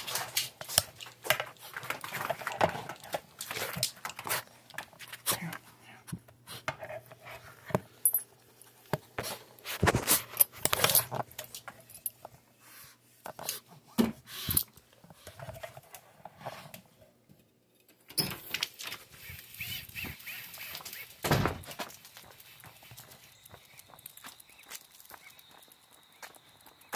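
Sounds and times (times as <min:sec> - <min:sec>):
dog harness rustling and jangling: 0:18.7 - 0:26.8.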